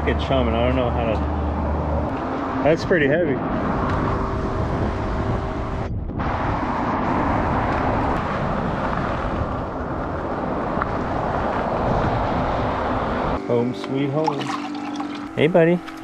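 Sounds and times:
road and tyre noise: 0:00.0 - 0:16.0
wind rushing over microphone: 0:01.3 - 0:13.4.

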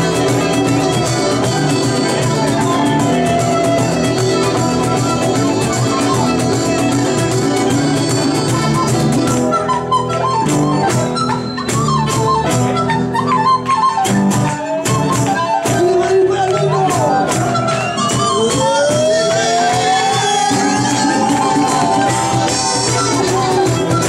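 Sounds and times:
folk band playing: 0:00.0 - 0:24.0
ornamented flute melody: 0:00.0 - 0:24.0.

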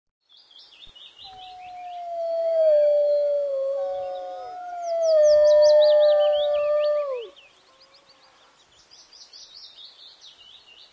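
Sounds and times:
birds chirping: 0:00.4 - 0:10.9
dogs howling: 0:01.3 - 0:07.3.

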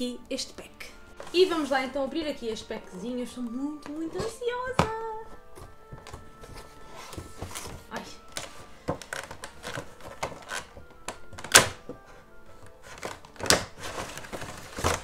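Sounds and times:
cardboard box and plastic tray handled: 0:03.8 - 0:15.0.

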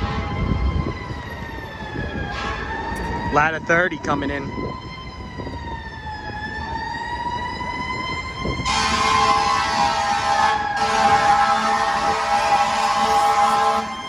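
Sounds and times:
air horns blaring: 0:00.0 - 0:00.4, 0:02.3 - 0:02.8, 0:08.6 - 0:14.0
fire truck siren wailing: 0:00.0 - 0:14.0.

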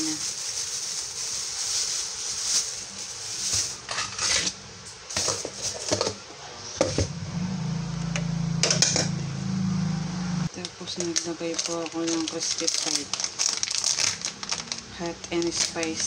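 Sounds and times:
flour pouring with soft hiss: 0:00.0 - 0:03.9
low steady hum: 0:06.4 - 0:16.0.

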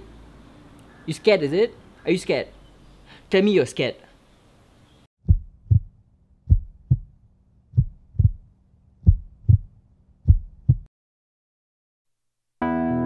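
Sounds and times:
heartbeat thumps: 0:05.2 - 0:10.9.

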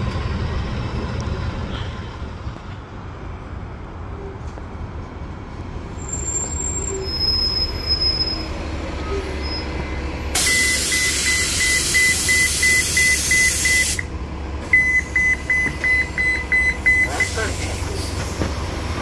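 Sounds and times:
high warning beeper: 0:10.4 - 0:14.0, 0:14.8 - 0:17.5
air hiss from bus suspension: 0:10.4 - 0:14.1, 0:17.1 - 0:18.8.

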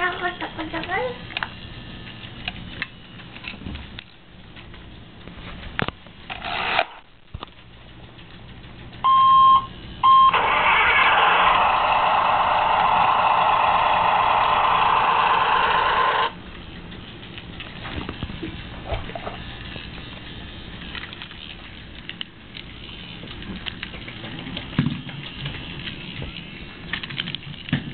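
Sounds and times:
toy short beeps: 0:09.1 - 0:10.4
toy engine rumble from speaker: 0:10.0 - 0:16.8.

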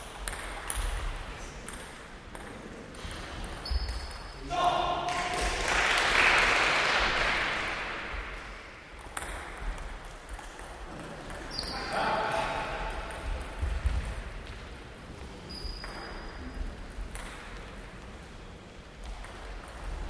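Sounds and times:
short high squeaks: 0:11.5 - 0:11.9, 0:15.5 - 0:16.5.

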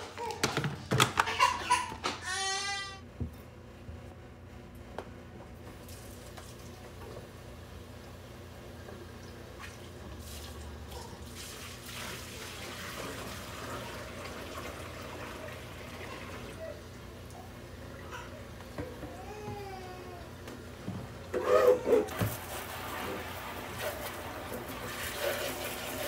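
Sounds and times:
water splashing in plastic bin: 0:09.6 - 0:15.1
tap water running into sink: 0:22.0 - 0:26.0.

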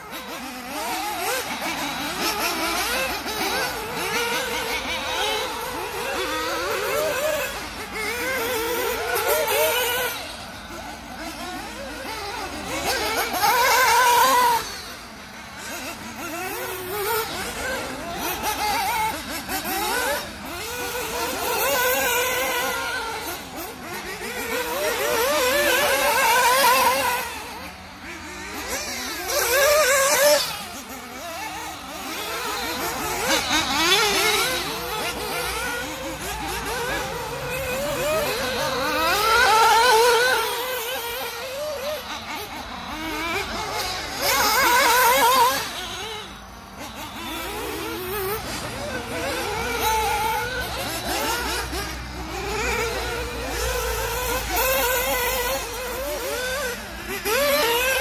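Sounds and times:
model buggy engine revving: 0:00.0 - 0:58.0.

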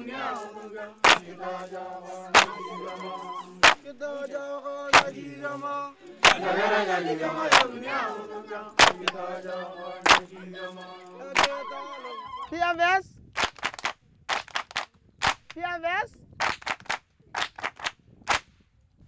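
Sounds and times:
group of voices chanting: 0:00.0 - 0:12.6
sharp beat: 0:01.0 - 0:04.0.

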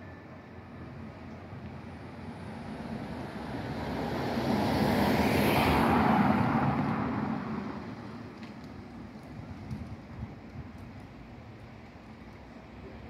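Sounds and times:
car driving past: 0:03.2 - 0:08.0.

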